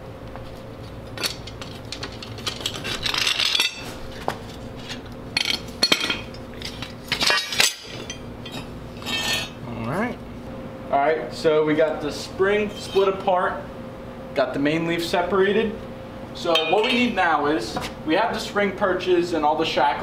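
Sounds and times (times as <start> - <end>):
steel leaves clinking and scraping: 1.1 - 4.0, 4.8 - 9.6, 12.6 - 13.2, 16.5 - 17.2.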